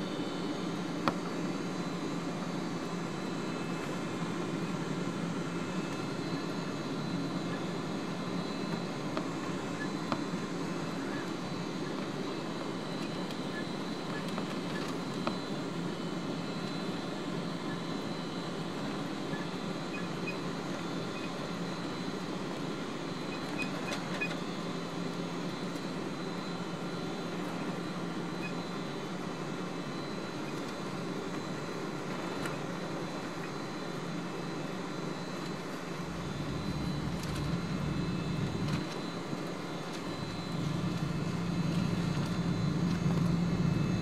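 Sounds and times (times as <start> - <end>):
jet engines humming with high whine: 0.0 - 44.0
wheels rumbling on taxiway: 35.9 - 44.0.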